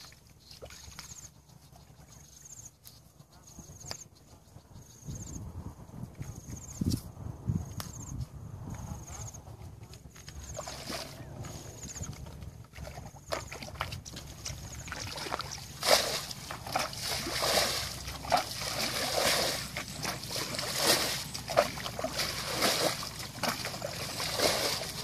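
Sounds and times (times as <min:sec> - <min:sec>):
bucket bailing water splashing: 0:10.6 - 0:11.2, 0:12.3 - 0:25.0.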